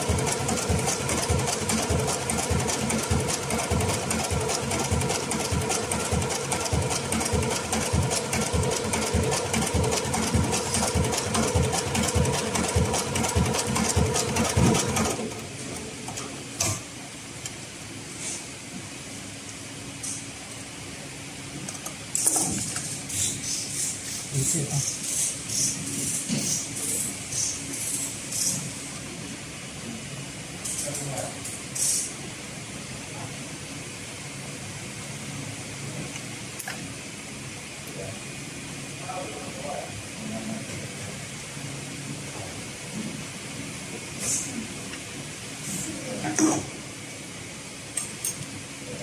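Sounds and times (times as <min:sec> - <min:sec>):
sewing machine running: 0:00.0 - 0:15.5.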